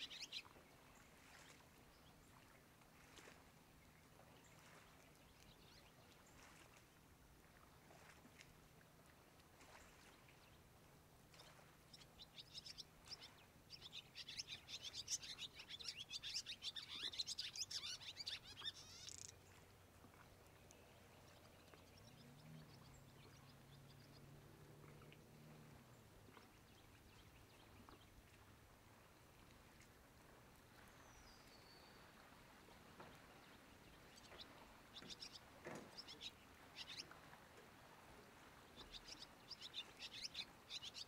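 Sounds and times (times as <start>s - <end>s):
bird chattering chirps: 14.2s - 19.4s.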